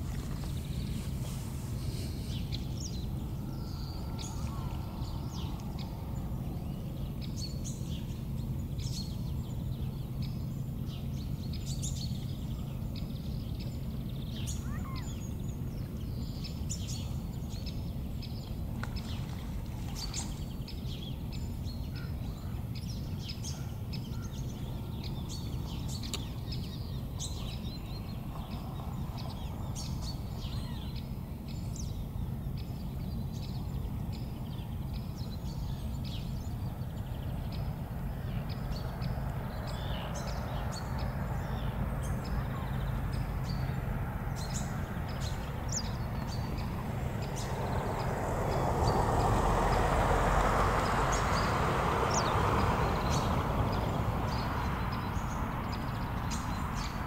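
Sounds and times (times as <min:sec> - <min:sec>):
steady low rumble: 0:00.0 - 0:11.6, 0:36.2 - 0:56.6
birds chirping: 0:00.0 - 0:57.0.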